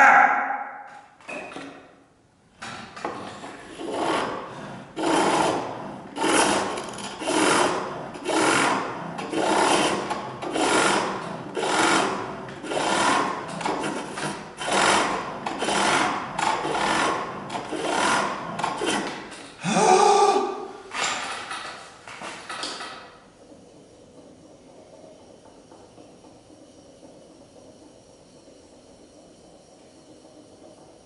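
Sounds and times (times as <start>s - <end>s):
chisel shaving spinning wood: 3.0s - 19.8s, 23.3s - 31.0s.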